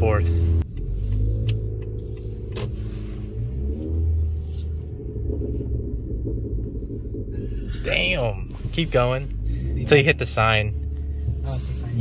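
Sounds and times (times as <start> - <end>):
car exhaust drone inside cabin: 0.0 - 12.0.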